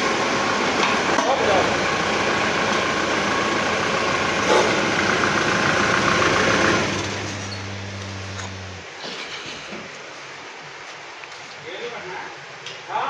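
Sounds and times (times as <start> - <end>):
motor whining: 1.6 - 8.8
low steady hum: 5.1 - 9.0.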